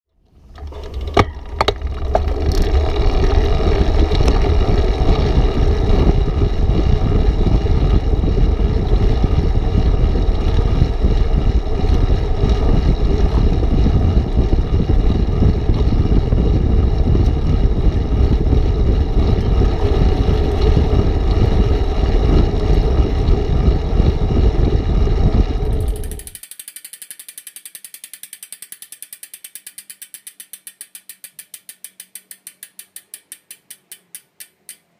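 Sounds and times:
bicycle road rumble: 0.1 - 34.1
wind rush: 2.3 - 26.4
fast regular ticking: 25.4 - 34.9
clicks: 25.7 - 34.9.

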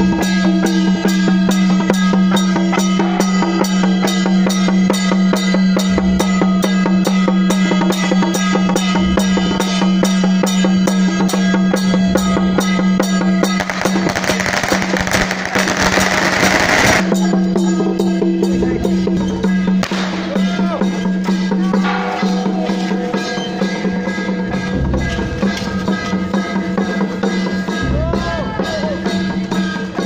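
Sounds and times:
hand cymbals: 0.0 - 30.0
small drum: 12.6 - 17.4
dense crackling noise: 13.6 - 17.1.

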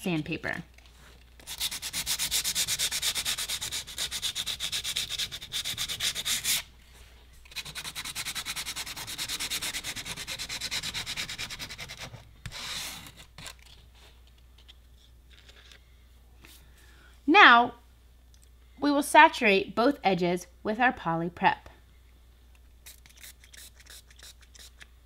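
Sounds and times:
sandpaper rubbing on plastic: 1.4 - 6.7, 7.5 - 13.5, 22.9 - 24.8.

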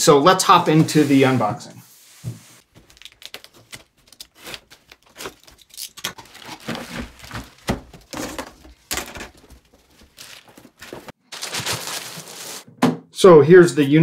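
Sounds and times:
plastic wrap crinkling: 2.6 - 8.4, 9.3 - 12.7
packing tape tearing: 2.8 - 8.5, 10.1 - 12.6
cardboard rustling and scraping: 4.3 - 12.7.

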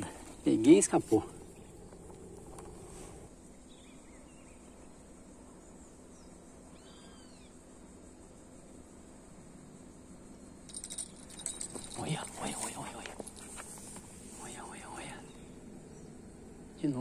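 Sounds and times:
steady high background hiss: 0.0 - 17.0
bird chirps: 6.1 - 7.5.

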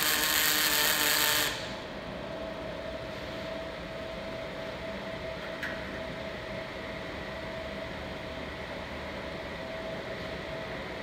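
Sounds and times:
machine hum with fan hiss: 0.0 - 11.0.

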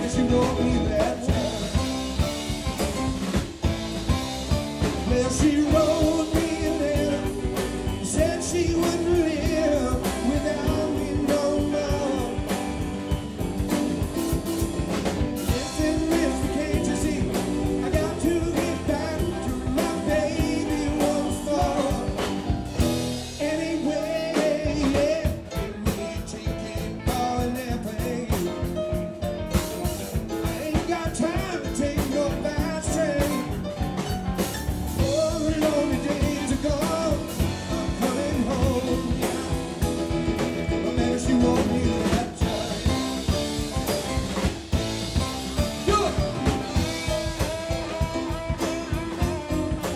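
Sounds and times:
person singing: 0.0 - 2.2, 4.8 - 13.2, 15.4 - 28.8, 30.4 - 33.6, 35.0 - 43.6, 45.8 - 49.9
live rock band: 0.0 - 49.9.

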